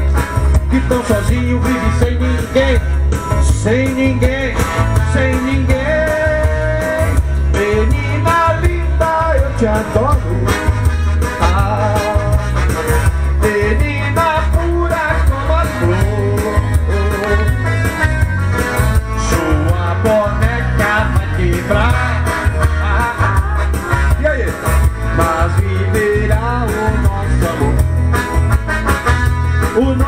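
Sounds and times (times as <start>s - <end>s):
electronic keyboard music: 0.0s - 30.0s.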